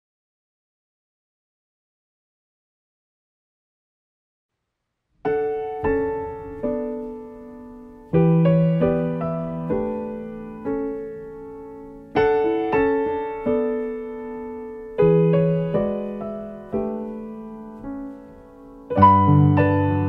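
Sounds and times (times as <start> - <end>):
slow solo piano: 5.2 - 20.0.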